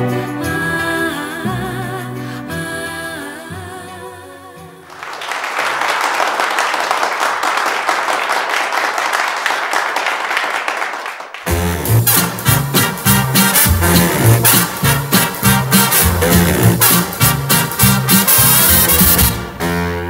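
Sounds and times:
swing music: 0.0s - 4.7s, 11.5s - 20.0s
audience applauding: 4.9s - 11.5s.

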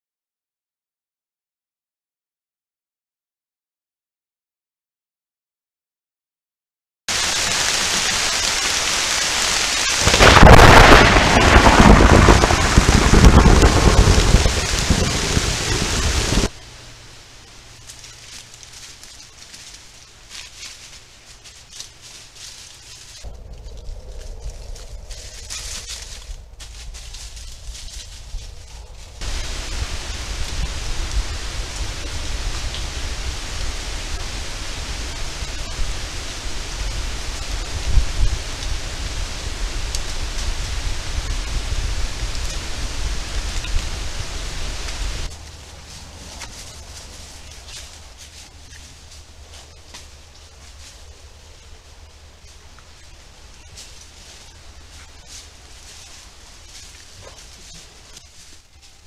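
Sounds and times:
heavy rain on foliage: 7.1s - 23.6s, 29.1s - 59.0s
thunder rumbling: 7.3s - 16.6s, 23.2s - 45.3s.

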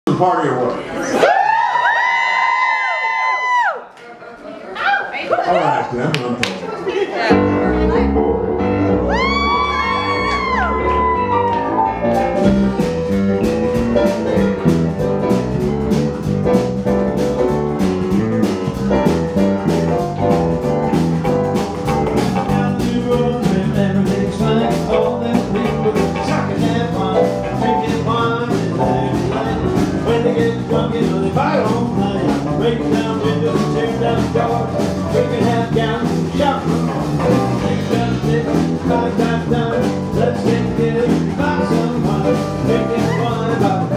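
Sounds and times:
guitar: 6.6s - 43.9s
live blues band playing: 7.3s - 43.9s
steady drum beat: 10.5s - 43.9s.

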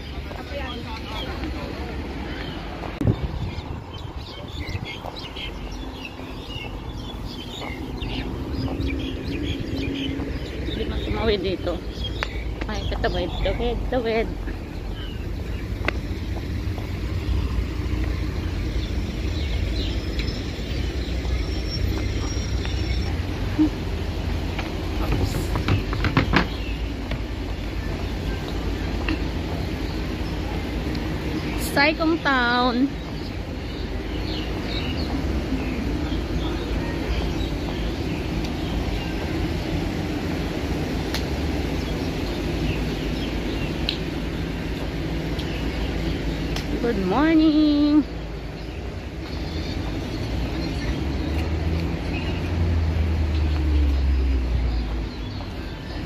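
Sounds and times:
minibus engines rumbling: 0.0s - 56.0s
road traffic: 0.0s - 56.0s
street noise: 0.0s - 56.0s.

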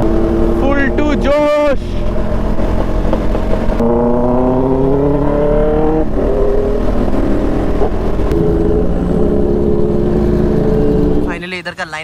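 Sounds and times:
motorcycle engine running: 0.0s - 11.4s
wind and road noise: 0.0s - 12.0s.

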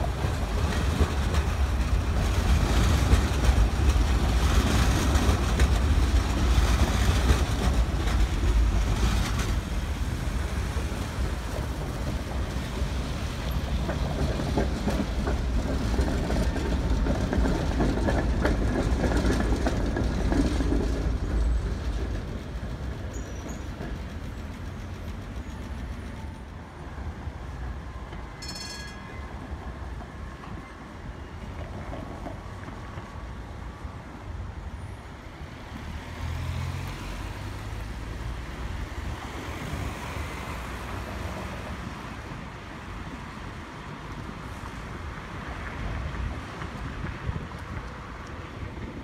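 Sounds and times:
trams rolling on rails: 0.0s - 49.0s
high ringing note: 28.4s - 29.3s
cars passing: 35.3s - 42.2s.

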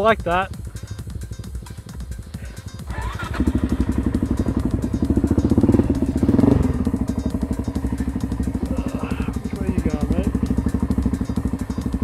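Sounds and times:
dirt bike engine accelerating: 2.9s - 12.0s.

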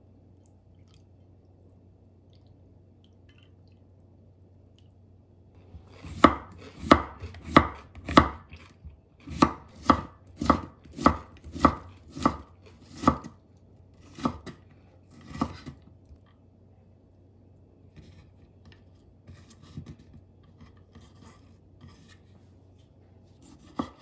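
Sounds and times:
knife slicing cucumber on board: 5.8s - 13.4s, 14.0s - 15.8s, 23.4s - 24.0s.

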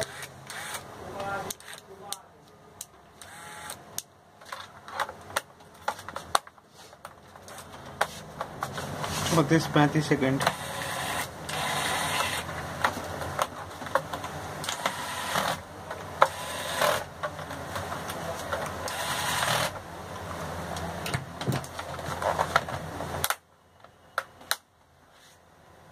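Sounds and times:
electric screwdriver motor whirring: 0.0s - 0.8s, 1.5s - 1.8s, 3.2s - 3.8s, 10.4s - 12.5s, 14.7s - 15.6s, 16.2s - 17.1s, 18.9s - 19.8s
screwdriver bit clicking on screws: 0.0s - 0.8s.

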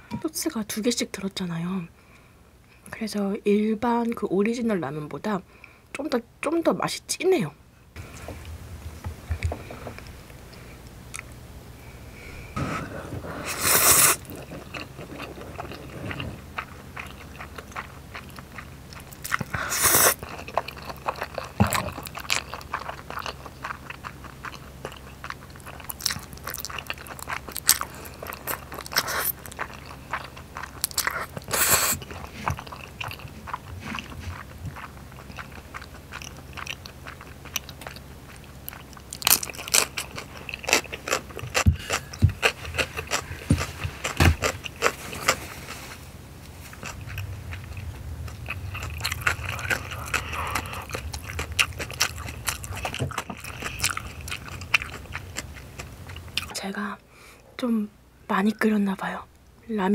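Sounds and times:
wet chewing: 12.5s - 56.6s
noodles being slurped: 12.6s - 37.6s.

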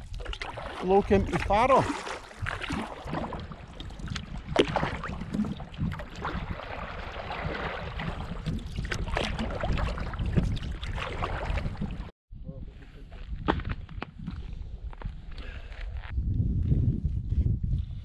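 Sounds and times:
water splashing around kayak: 0.0s - 12.1s
wind rumble on microphone: 2.3s - 18.0s.

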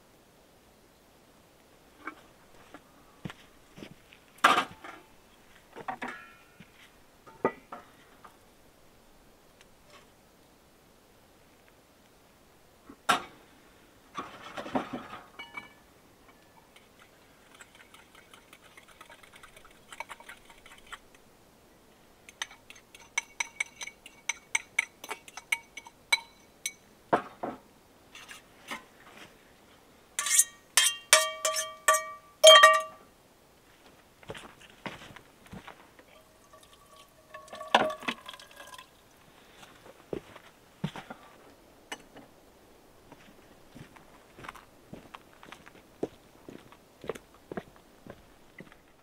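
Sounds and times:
metal utensils clinking on pot: 15.4s - 15.8s, 22.3s - 26.8s, 30.2s - 33.0s, 36.2s - 38.8s.

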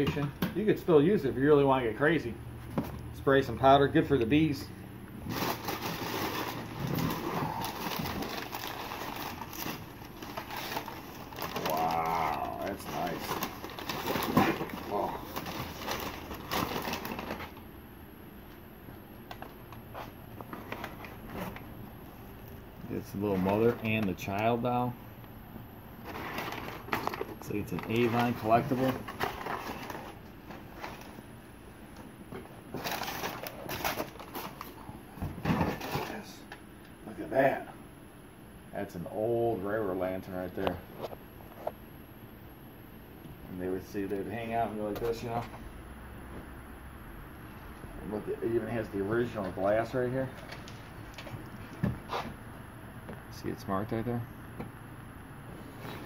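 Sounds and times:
packing paper rustling: 5.2s - 17.6s, 26.0s - 31.2s, 32.7s - 34.9s
rummaging in cardboard box: 5.2s - 17.6s, 26.0s - 31.2s, 32.7s - 36.2s.

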